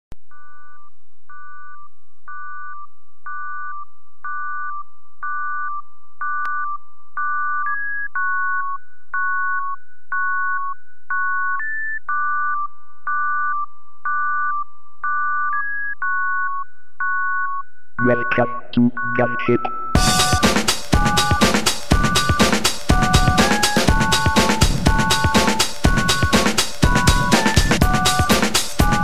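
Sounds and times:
faint held electronic tone: 0.3s - 20.5s
repeating two-note electronic tones: 6.2s - 29.0s.

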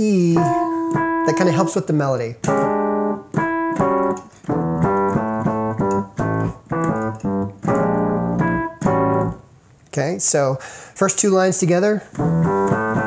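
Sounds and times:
digital piano playing funk: 0.0s - 9.5s, 12.1s - 13.0s.

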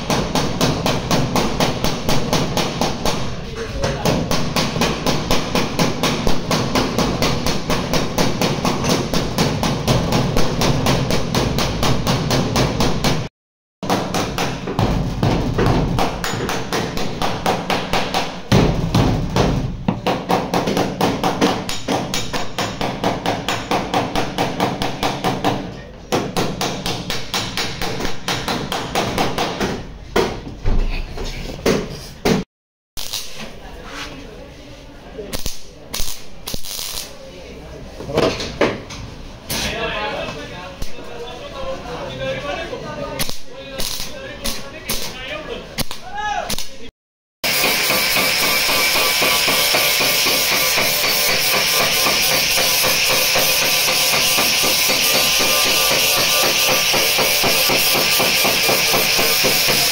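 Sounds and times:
hammer blows on sheet metal: 0.0s - 30.4s, 47.4s - 59.9s.

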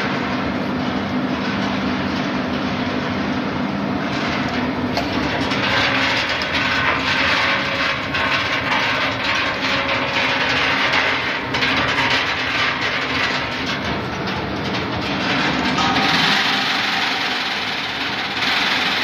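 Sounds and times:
mechanical hum: 0.0s - 19.0s
almonds rattling on metal conveyor: 4.3s - 19.0s.

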